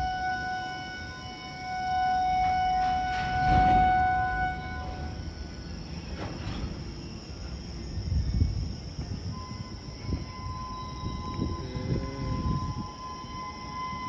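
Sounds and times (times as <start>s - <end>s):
locomotive horn: 0.0s - 5.4s, 9.4s - 14.0s.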